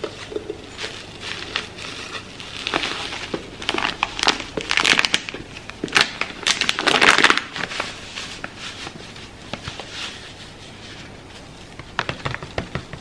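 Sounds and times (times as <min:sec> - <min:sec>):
plastic container crinkling: 0:00.0 - 0:10.3.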